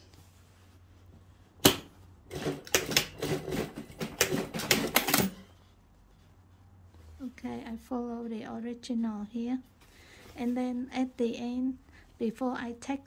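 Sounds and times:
sewing machine stitching: 2.3s - 5.4s.

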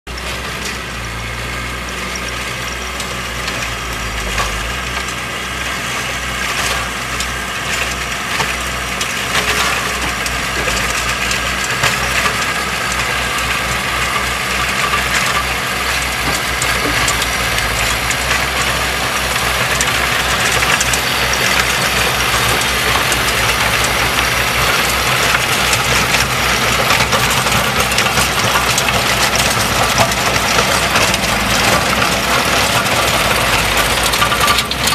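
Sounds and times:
diesel tractor running: 0.1s - 34.9s
rotary tiller churning soil: 0.1s - 34.9s.

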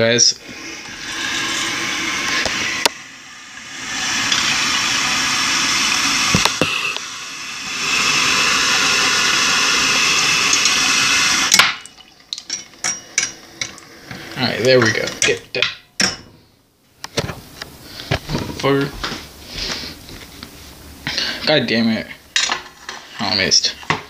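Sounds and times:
faucet water splashing in sink: 0.5s - 15.4s.

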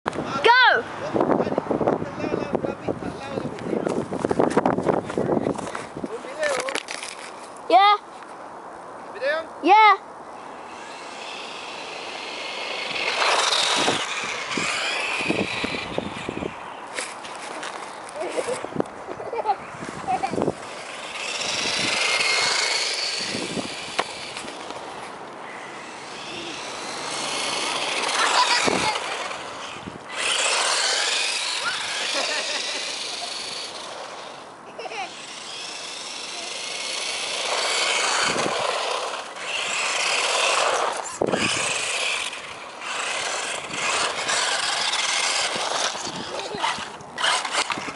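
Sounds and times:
rc truck motor whine: 10.5s - 17.2s, 20.1s - 47.9s.

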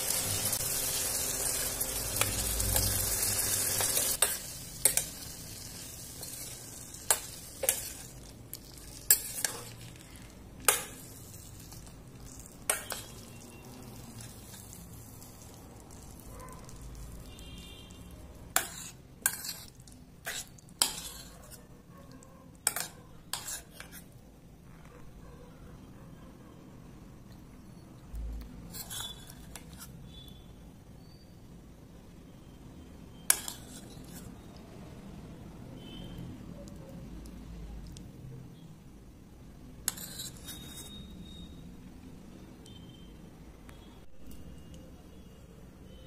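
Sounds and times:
faint sizzle of simmering gravy: 0.0s - 21.6s
metal spoon clinking against pan: 3.8s - 13.4s, 18.6s - 21.6s, 22.6s - 23.9s, 33.3s - 34.2s.

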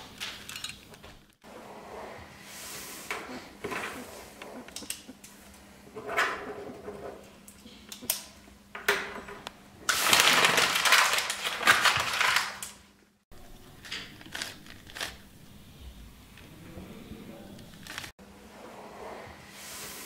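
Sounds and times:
paper crumpling: 9.9s - 12.8s, 13.4s - 15.3s, 17.6s - 18.1s
puzzle cube plastic clicks: 13.8s - 15.2s.

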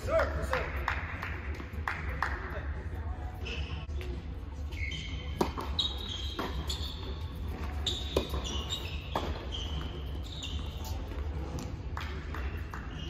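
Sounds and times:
low hum in hall: 0.0s - 13.0s
sneakers squeaking on court: 3.3s - 13.0s
tennis ball struck by rackets: 8.0s - 9.4s.

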